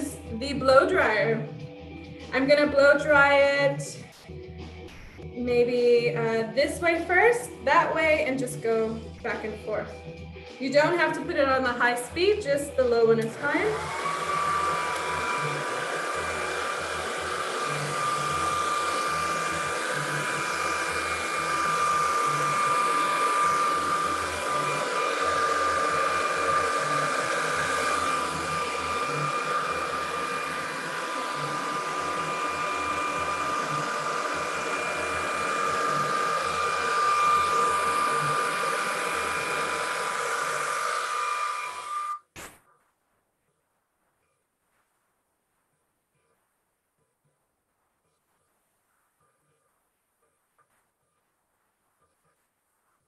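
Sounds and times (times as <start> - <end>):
hair dryer running: 0.0 - 4.0, 5.3 - 9.6, 10.6 - 42.3.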